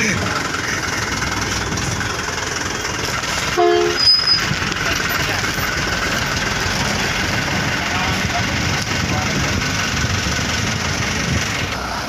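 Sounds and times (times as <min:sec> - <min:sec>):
diesel truck engine passing: 0:00.0 - 0:12.0
truck horn blast: 0:03.5 - 0:04.4
high squeak: 0:03.6 - 0:04.6.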